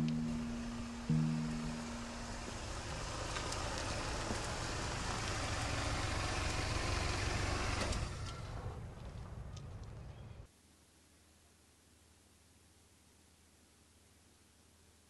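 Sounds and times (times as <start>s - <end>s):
car engine and road noise: 0.0s - 10.5s.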